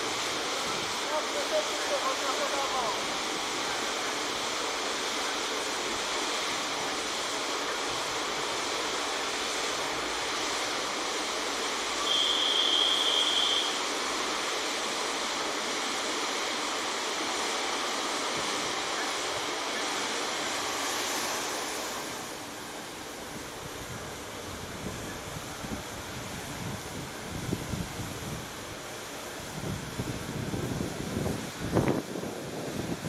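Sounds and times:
train rushing noise: 0:00.0 - 0:33.0
high thin steady tone: 0:09.7 - 0:14.3.

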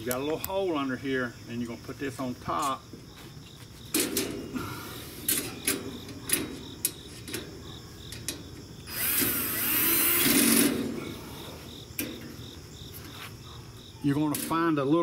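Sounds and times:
light metal clicks and knocks: 0:05.3 - 0:08.7, 0:11.9 - 0:12.5
cordless drill driving screw: 0:08.9 - 0:10.8.

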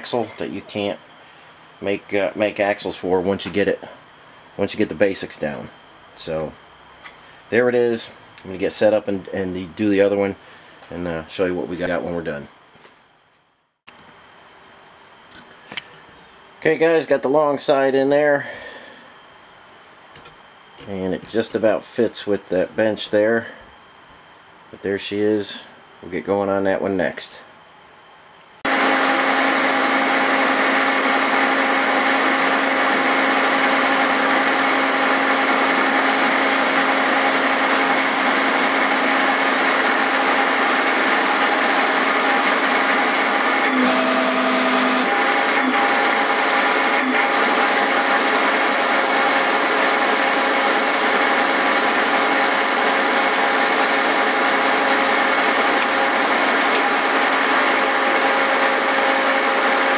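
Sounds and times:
milling machine running: 0:28.7 - 0:59.9.

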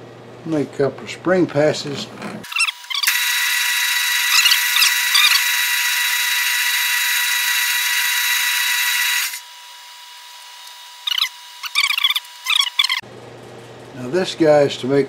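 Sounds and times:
metal lathe whining: 0:02.5 - 0:09.5.

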